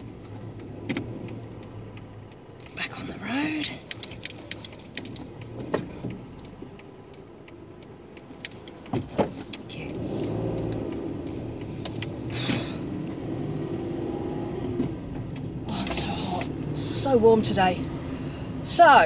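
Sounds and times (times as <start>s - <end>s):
sharp clicks: 0.0s - 14.0s
car engine and road noise: 0.0s - 19.0s.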